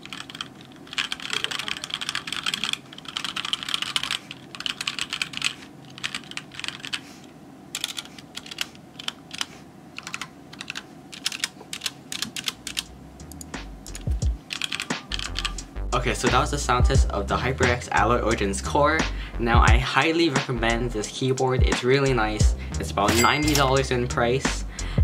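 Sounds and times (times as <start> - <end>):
mechanical keyboard key clacks: 7.8 - 15.5.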